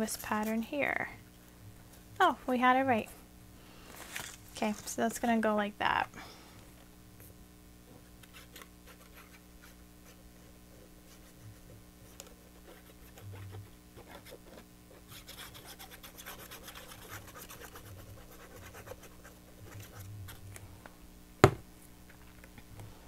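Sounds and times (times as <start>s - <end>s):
low steady hum: 0.0s - 23.0s
scratchy rubbing of paper: 8.2s - 20.4s.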